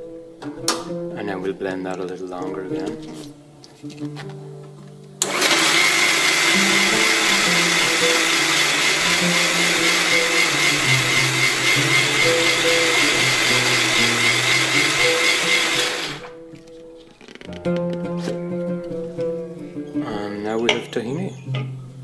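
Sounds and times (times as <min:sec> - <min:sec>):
electric spice grinder whining: 0:05.2 - 0:16.4.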